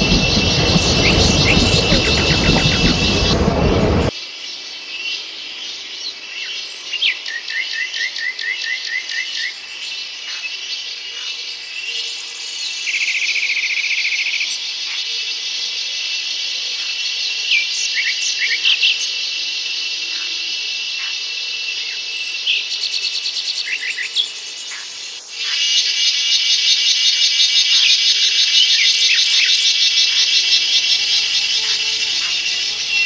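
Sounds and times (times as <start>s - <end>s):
birds calling: 0.0s - 4.1s
passing train rumble: 0.0s - 4.1s, 28.0s - 33.0s
high insect chorus: 0.0s - 33.0s.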